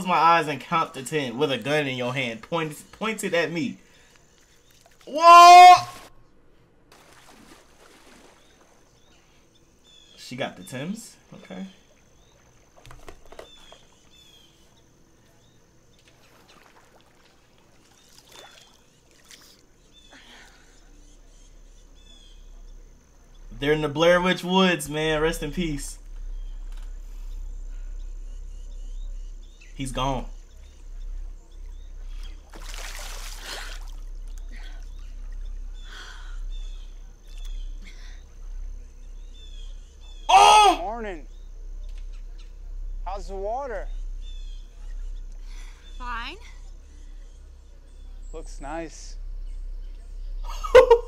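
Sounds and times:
water sloshing and trickling: 1.0 - 5.1, 5.9 - 40.2
water splashing: 4.4 - 5.2, 6.9 - 9.0, 16.0 - 19.9, 29.9 - 36.5
bird chirps: 7.1 - 17.2, 17.8 - 51.0
low rumble: 19.8 - 51.0.

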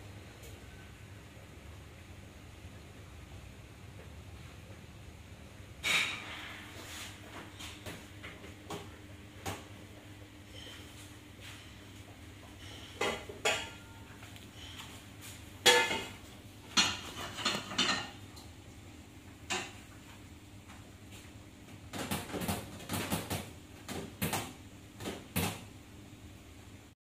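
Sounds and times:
steady low hum: 0.0 - 22.0
pots and pans clanking: 5.8 - 6.9, 12.5 - 14.8, 15.6 - 18.2, 19.4 - 19.9.

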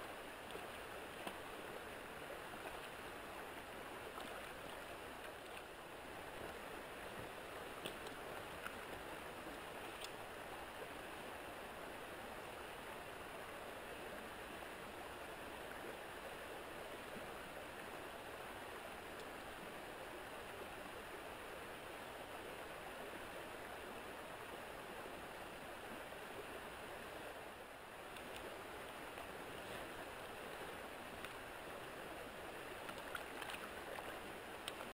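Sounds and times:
water rushing over stones: 0.0 - 11.9, 26.5 - 34.9
faint clicks: 7.8 - 10.2, 19.1 - 19.4, 28.1 - 31.4, 32.8 - 34.9.

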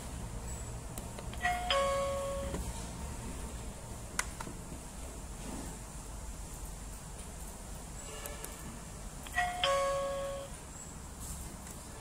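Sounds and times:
ding-dong chime: 1.4 - 2.5, 9.3 - 10.6.

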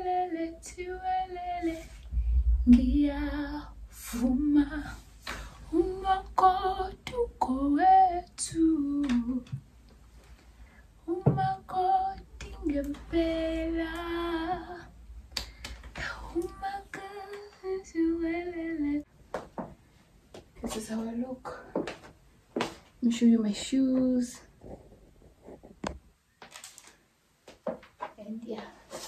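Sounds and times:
woman singing unaccompanied: 0.0 - 2.0, 2.6 - 9.7, 11.0 - 15.0, 16.0 - 19.1, 23.0 - 24.5.

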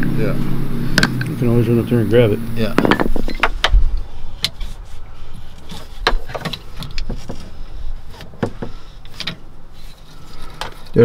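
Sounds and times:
hand tools clicking and knocking: 2.8 - 3.8, 5.6 - 7.5.

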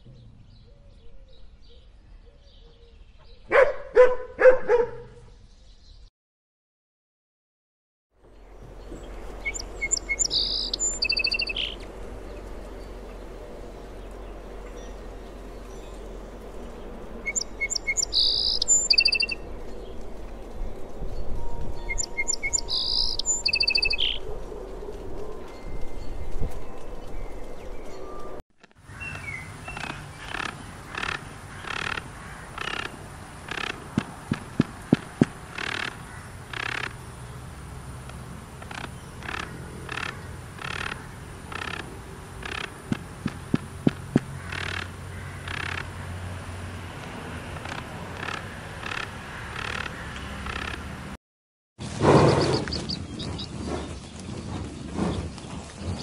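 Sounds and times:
small birds chirping: 8.3 - 20.8, 21.8 - 24.3, 28.7 - 46.0, 47.0 - 51.2, 52.2 - 56.0
outdoor background hiss: 28.8 - 51.2
raspy bird call: 28.9 - 37.0, 38.6 - 45.9, 47.6 - 50.9.

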